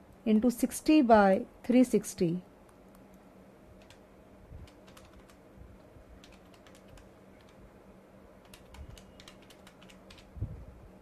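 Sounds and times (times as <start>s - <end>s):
low steady hum: 0.0s - 11.0s
keys tapping: 4.6s - 7.6s, 8.4s - 10.3s.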